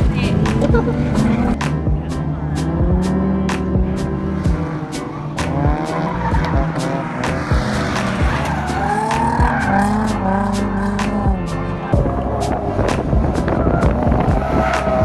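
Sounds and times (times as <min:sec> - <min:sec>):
background music: 0:00.0 - 0:15.0
car engines revving: 0:00.0 - 0:15.0
tyres squealing: 0:04.9 - 0:11.3.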